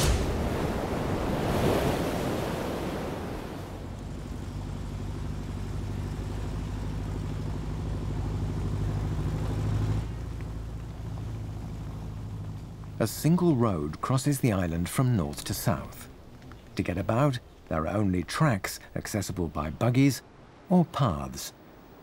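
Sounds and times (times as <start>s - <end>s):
surf breaking and washing: 0.0s - 22.0s
dune buggy engine running: 3.8s - 17.8s.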